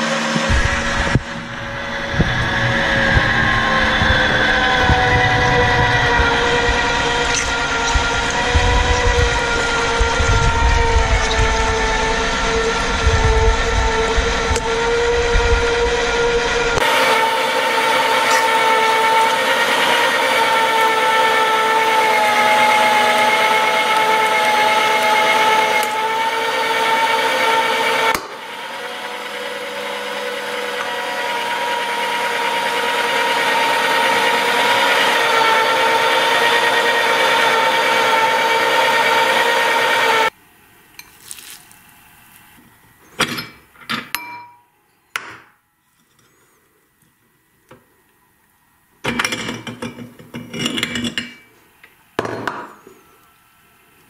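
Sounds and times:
electric meat grinder whining: 0:00.0 - 0:40.4
crystals crunching: 0:41.1 - 0:41.8.

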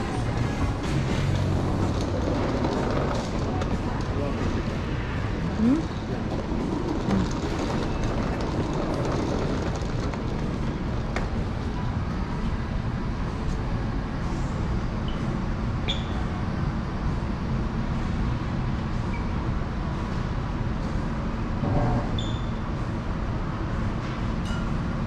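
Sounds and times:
airport terminal rumble: 0:00.0 - 0:25.0.

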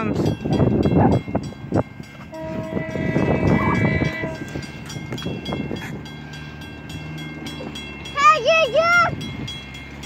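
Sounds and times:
trolley car horn chord: 0:02.0 - 0:10.0.

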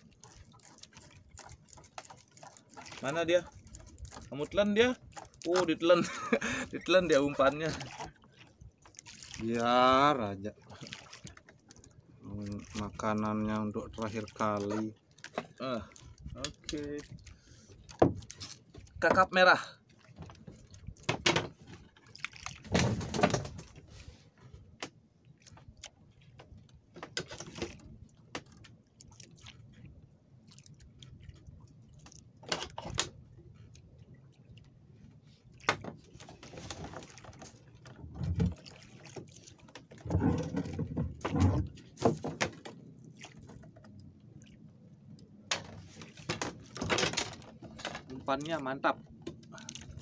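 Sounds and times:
knocks and rustles on wooden deck: 0:17.9 - 0:19.3, 0:20.2 - 0:21.8, 0:22.6 - 0:23.8, 0:39.8 - 0:42.8.

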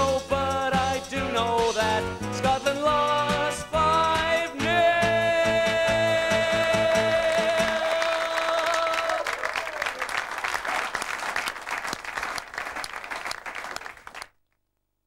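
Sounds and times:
backing music: 0:00.0 - 0:08.9
audience applauding: 0:07.2 - 0:14.4.

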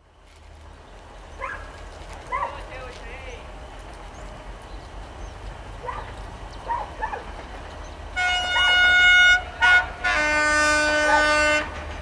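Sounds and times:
locomotive air horn blasts: 0:08.2 - 0:12.0.

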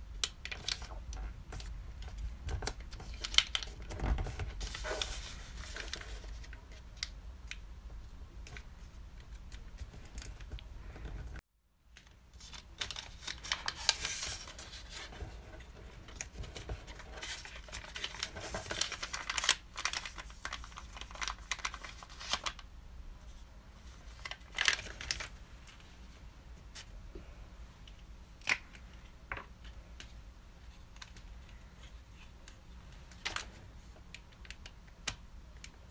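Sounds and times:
paper rustling and crinkling: 0:00.2 - 0:07.1, 0:12.0 - 0:22.6, 0:23.3 - 0:26.9.

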